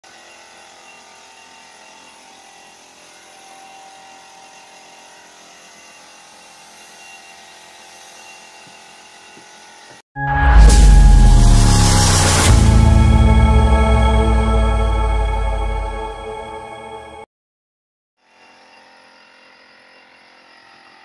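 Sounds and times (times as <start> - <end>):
loud music: 10.2 - 17.2.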